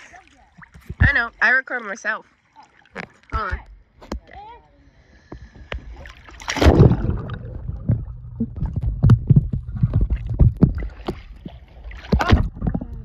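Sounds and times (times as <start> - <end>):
underwater bubbles churning: 5.7 - 13.0
person splashing into pool: 6.0 - 13.0.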